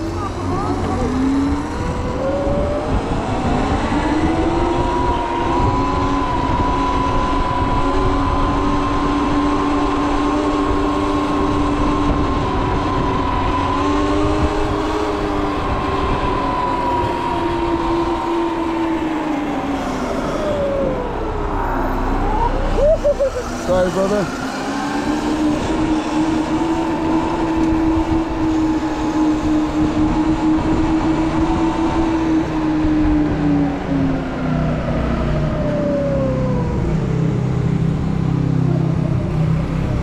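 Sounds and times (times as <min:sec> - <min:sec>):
electric motor whine: 0:00.0 - 0:37.9
low rumble: 0:11.5 - 0:26.7.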